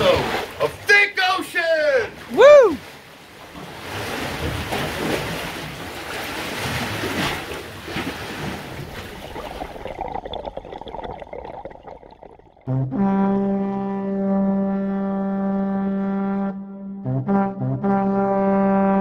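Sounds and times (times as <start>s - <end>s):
ocean waves surging into rock pool: 0.0s - 12.4s.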